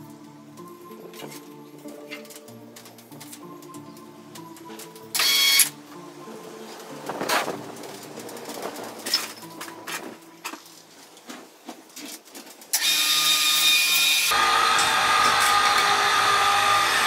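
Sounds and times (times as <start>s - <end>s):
hoist motor whining: 12.7s - 17.0s.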